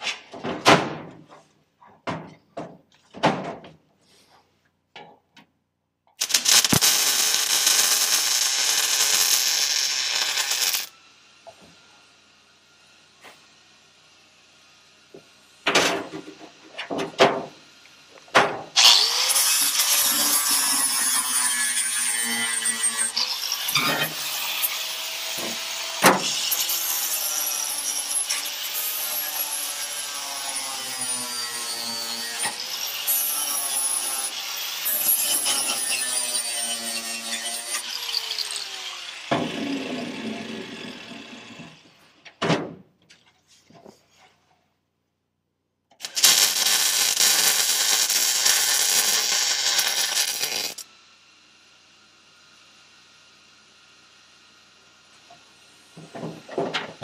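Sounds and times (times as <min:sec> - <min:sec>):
angle grinder grinding metal: 0:06.2 - 0:11.0, 0:18.8 - 0:42.1, 0:46.0 - 0:50.9.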